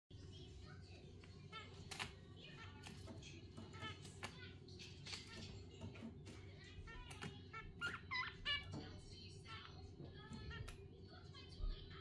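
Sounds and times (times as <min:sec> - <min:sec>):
squeaky bird calls: 0:06.8 - 0:08.8.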